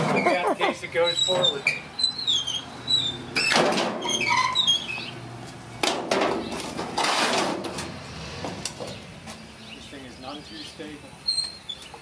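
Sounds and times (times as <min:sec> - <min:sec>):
wheelbarrow squeaking: 0:00.0 - 0:05.2, 0:06.1 - 0:09.0
debris rattling and scraping: 0:05.8 - 0:09.0.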